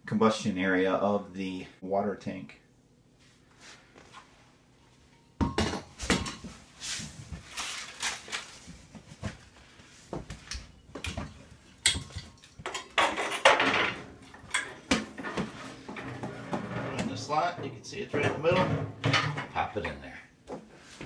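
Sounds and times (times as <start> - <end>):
metal clanking and scraping: 11.9 - 19.9.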